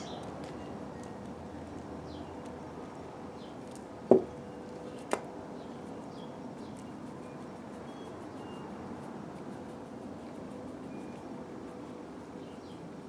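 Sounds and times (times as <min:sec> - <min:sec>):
faint bird chirps: 0:05.6 - 0:08.9.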